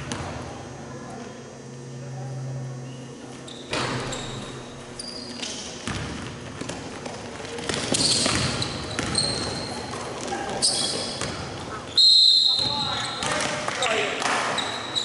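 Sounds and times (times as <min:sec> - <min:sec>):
sneakers squeaking on hardwood: 0:03.4 - 0:13.5
basketball bouncing: 0:05.8 - 0:09.9, 0:11.1 - 0:11.6.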